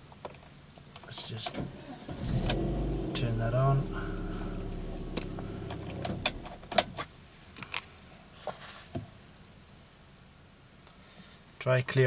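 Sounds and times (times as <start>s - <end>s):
car engine idling: 1.2s - 7.0s.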